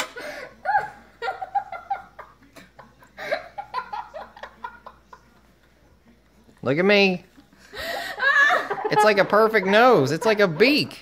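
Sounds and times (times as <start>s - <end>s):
laughter: 0.5s - 5.5s, 7.8s - 11.0s.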